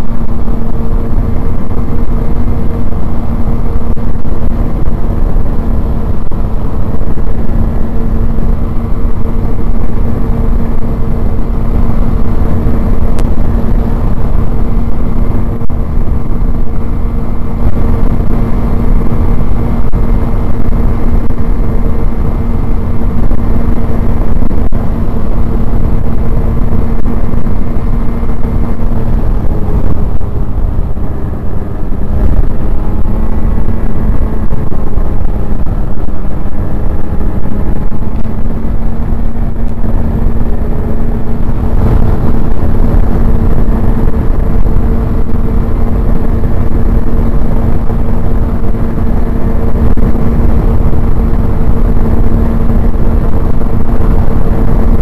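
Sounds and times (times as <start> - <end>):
snowmobile engine running: 0.0 - 55.0.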